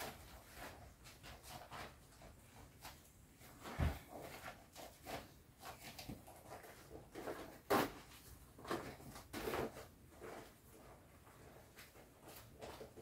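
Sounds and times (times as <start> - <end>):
plastic rustling and crinkling: 0.0 - 13.0.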